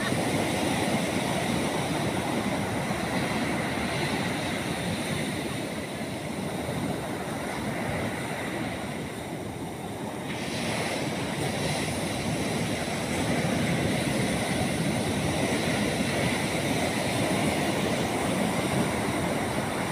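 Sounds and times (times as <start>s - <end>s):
ocean surf breaking: 0.0s - 19.9s
wind buffeting microphone: 0.0s - 19.9s.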